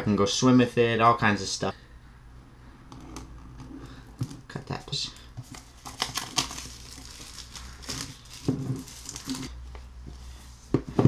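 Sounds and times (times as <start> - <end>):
plastic wrapping crinkling: 5.1 - 9.6.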